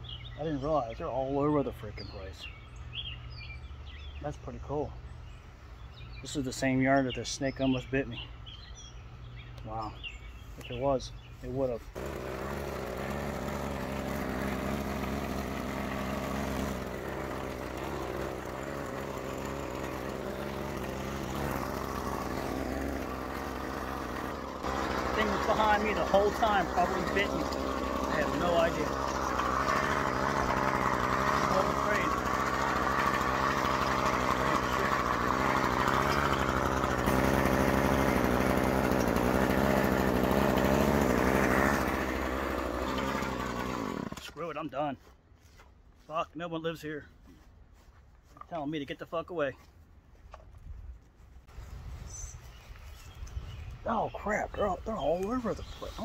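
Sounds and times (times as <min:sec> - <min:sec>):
lawn mower engine running: 0:11.5 - 0:44.4.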